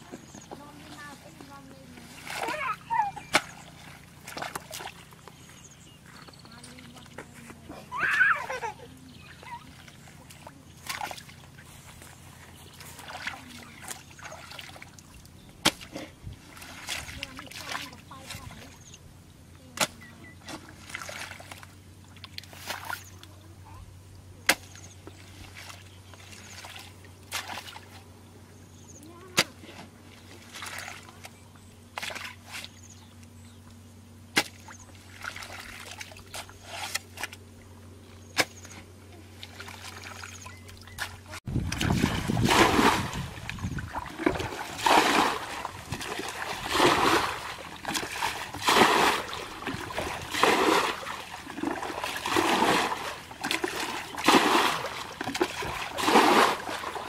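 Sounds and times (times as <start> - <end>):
bucket bailing water: 0.0 - 5.1, 12.8 - 18.7, 38.4 - 57.0
muddy water splashing and sloshing: 0.0 - 23.8, 24.4 - 57.0
steady low hum: 0.0 - 57.0.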